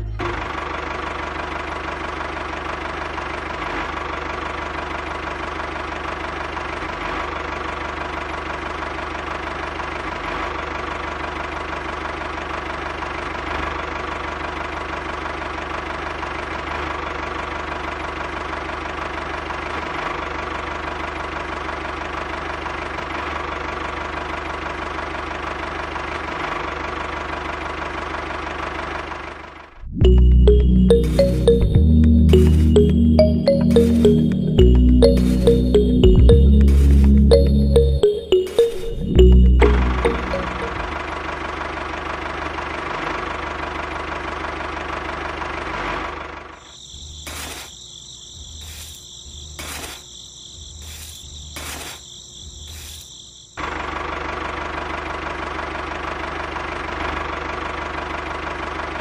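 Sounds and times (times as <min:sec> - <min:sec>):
tractor engine chugging idle: 0:00.0 - 0:30.7, 0:41.0 - 0:46.6, 0:53.6 - 0:59.0.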